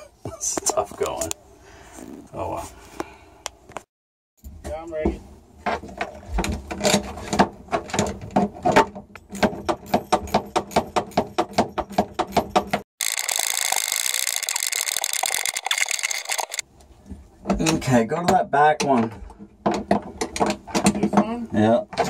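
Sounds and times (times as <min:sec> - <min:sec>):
ratchet wrench clicking: 0:13.0 - 0:16.6.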